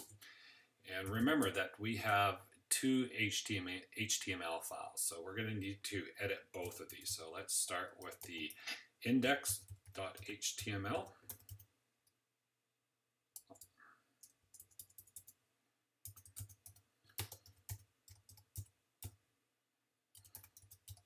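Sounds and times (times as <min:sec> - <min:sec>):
keyboard keys clicking: 0:14.5 - 0:15.3, 0:16.1 - 0:18.7.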